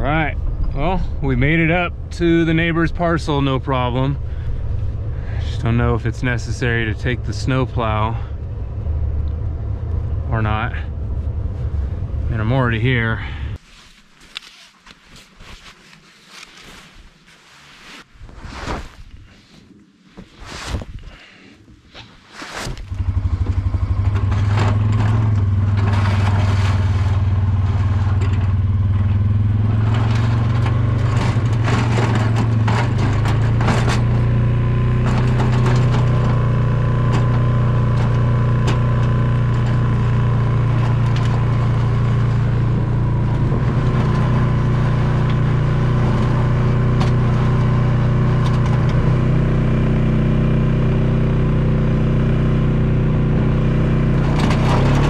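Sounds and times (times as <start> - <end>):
quad engine running: 22.7 - 55.0.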